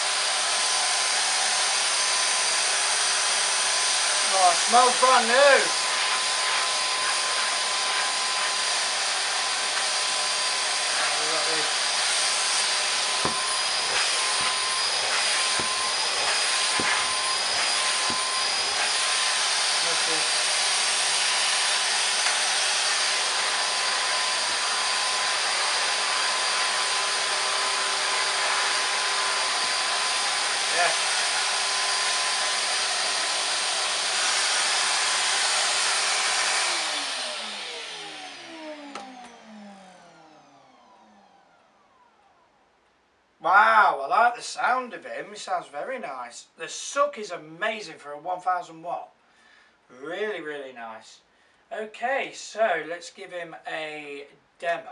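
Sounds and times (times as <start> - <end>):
vacuum cleaner running: 0.0 - 42.6
motor winding down whine: 36.4 - 42.6.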